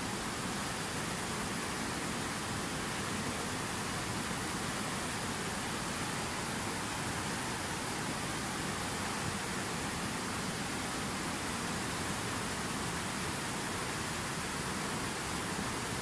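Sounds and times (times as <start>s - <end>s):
river rushing over boulders: 0.0s - 16.0s.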